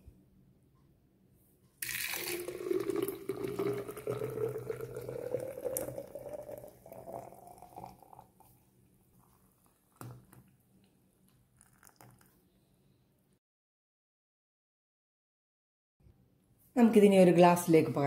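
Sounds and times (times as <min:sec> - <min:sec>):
milkshake pouring into glass: 0:01.8 - 0:10.5, 0:11.3 - 0:12.4.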